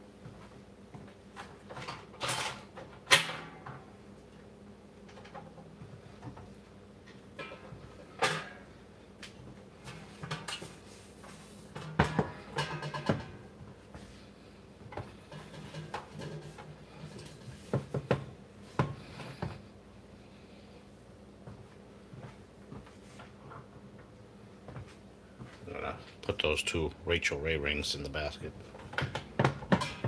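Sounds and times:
steady low hum: 3.6 - 30.0
kitchen items knocking and rattling: 11.7 - 13.5, 14.9 - 19.5, 28.7 - 30.0.

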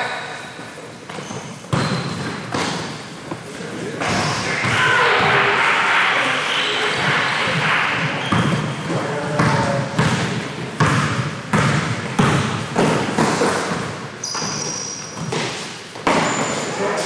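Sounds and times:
basketball bouncing on a court: 1.1 - 3.0, 8.0 - 16.6.

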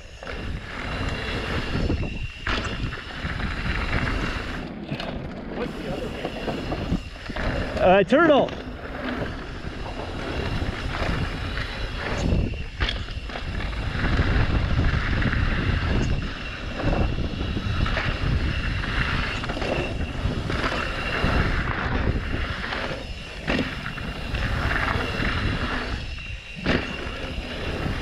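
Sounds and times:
wind on microphone: 0.0 - 28.0
tyres rolling over dirt: 0.2 - 28.0
bike knocks and rattles: 6.2 - 25.8, 26.5 - 28.0.

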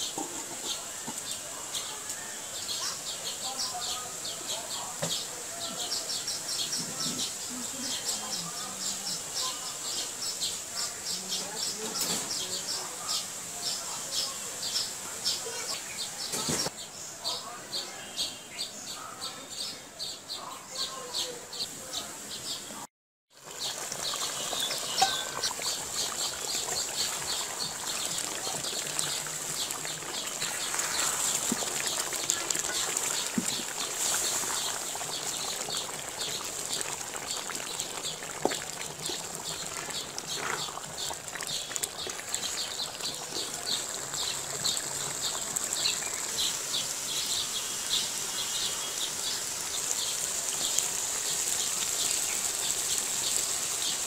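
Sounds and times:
curry bubbling and sizzling: 0.0 - 16.7, 23.3 - 54.0
steady high hiss: 43.6 - 54.0.

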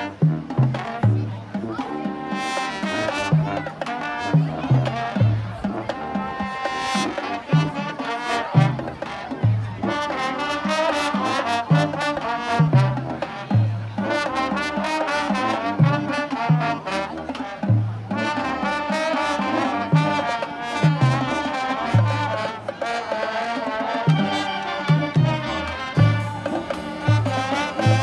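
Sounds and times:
marching band playing: 0.0 - 28.0
drum hits: 25.0 - 28.0.

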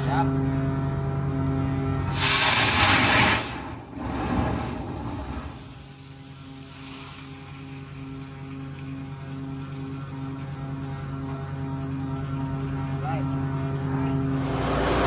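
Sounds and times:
low machinery hum: 0.0 - 15.0
compressed air blasting water: 2.1 - 8.4.

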